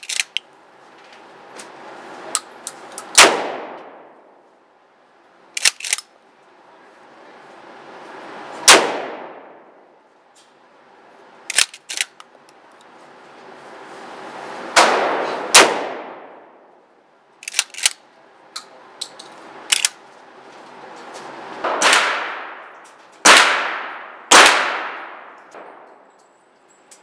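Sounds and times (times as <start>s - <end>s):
shotgun pump racking clacks: 0.0s - 0.4s, 5.6s - 6.1s, 11.5s - 12.3s, 17.4s - 18.0s
shotgun shots with echo: 3.2s - 4.0s, 8.7s - 9.6s, 14.8s - 16.4s, 21.6s - 25.9s.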